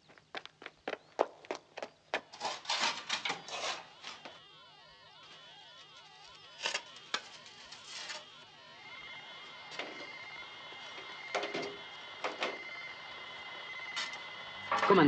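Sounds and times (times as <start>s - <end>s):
shovels scraping into earth: 2.4s - 4.2s
electronic sci-fi tones: 2.4s - 15.0s
steady high tone: 3.3s - 15.0s.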